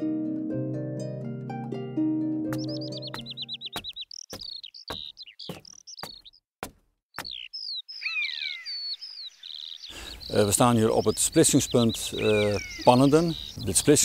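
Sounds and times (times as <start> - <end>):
harp piece: 0.0 - 3.6
footsteps: 2.5 - 6.8
songbirds chirping and trilling: 2.5 - 14.0.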